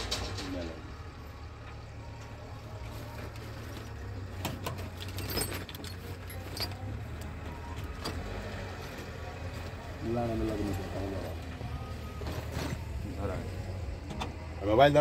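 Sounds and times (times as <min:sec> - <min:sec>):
diesel engine running low: 0:00.0 - 0:15.0.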